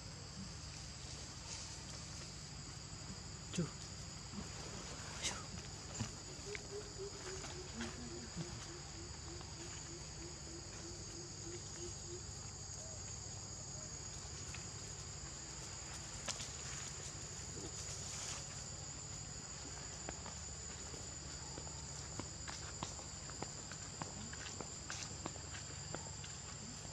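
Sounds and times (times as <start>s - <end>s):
faint low hoots: 5.2s - 13.0s
high-pitched insect drone: 5.2s - 26.9s
rustles in dry leaves: 15.8s - 19.2s.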